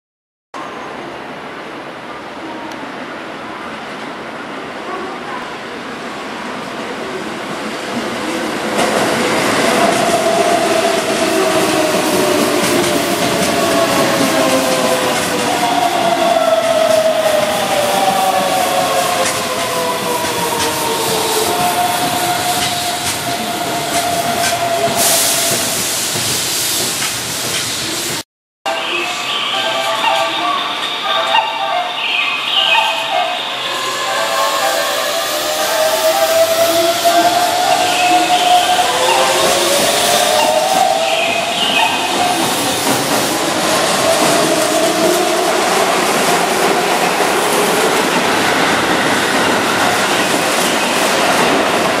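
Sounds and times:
train wheels clicking over rail joints: 0:20.2 - 0:28.2
electric train whine: 0:28.7 - 0:52.0.

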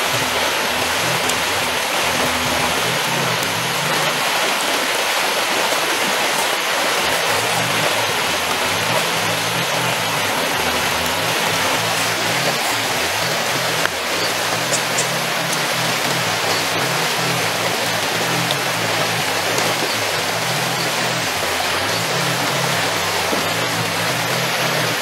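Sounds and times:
river water rushing: 0:00.0 - 0:25.0.

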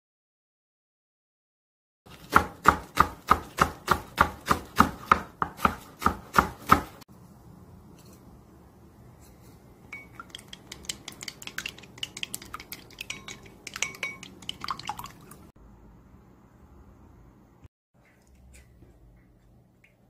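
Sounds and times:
chopsticks tapping glass bowl: 0:09.9 - 0:15.0.

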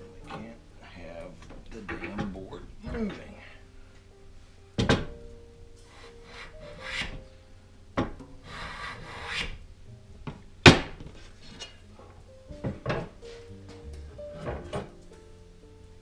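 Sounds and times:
hand plane shaving wood: 0:08.5 - 0:09.6.

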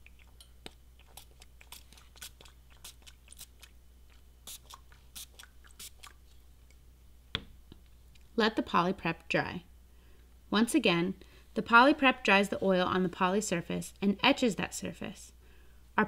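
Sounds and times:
spray bottle spritzing: 0:01.1 - 0:03.7, 0:04.4 - 0:06.1.

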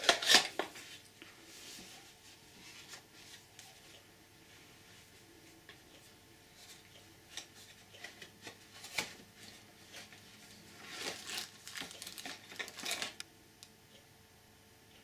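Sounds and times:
plastic packaging crinkling: 0:10.4 - 0:13.2.

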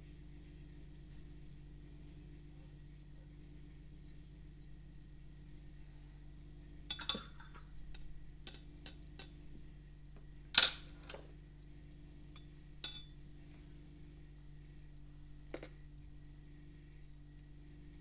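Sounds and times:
paintbrush clinking against cup: 0:12.4 - 0:13.1.

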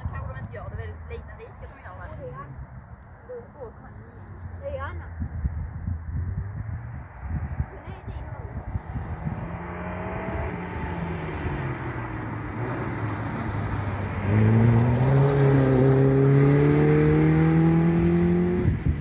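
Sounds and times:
rally car engine accelerating: 0:08.9 - 0:19.0.

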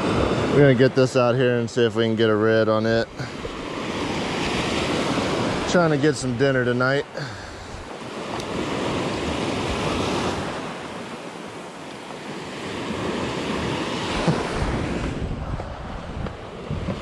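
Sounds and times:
wind on microphone: 0:00.0 - 0:00.8, 0:07.3 - 0:10.6, 0:12.9 - 0:17.0
surf washing up beach: 0:00.0 - 0:17.0.

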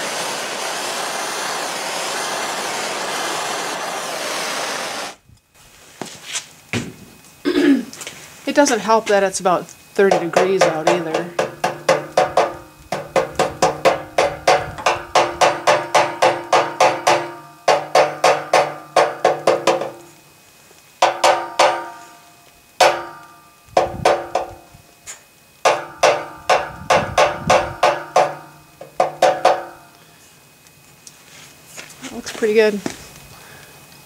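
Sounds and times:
hammer tapping on metal pipe: 0:10.1 - 0:20.1, 0:21.0 - 0:22.1, 0:22.8 - 0:24.7, 0:25.6 - 0:30.0.

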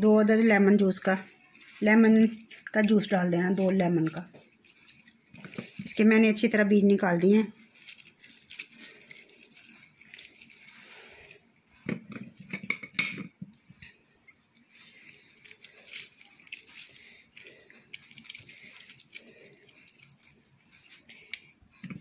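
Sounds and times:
small ticks and crackles: 0:01.6 - 0:06.0, 0:07.5 - 0:11.5, 0:14.1 - 0:21.5
juice dripping: 0:01.6 - 0:06.1, 0:07.5 - 0:11.6, 0:13.5 - 0:21.7.

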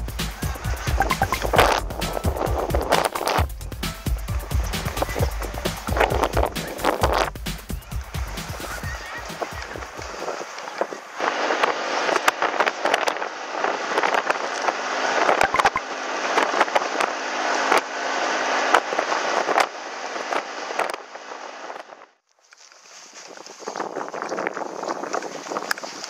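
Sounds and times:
crackling knocks: 0:00.0 - 0:08.8
wind rushing over microphone: 0:00.0 - 0:22.1, 0:23.2 - 0:26.0
road noise from bike: 0:00.0 - 0:26.0.

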